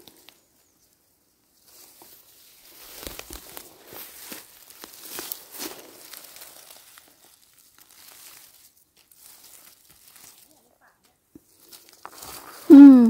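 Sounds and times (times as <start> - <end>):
rustling in undergrowth: 0.0 - 13.0
person exclaiming: 12.7 - 13.0.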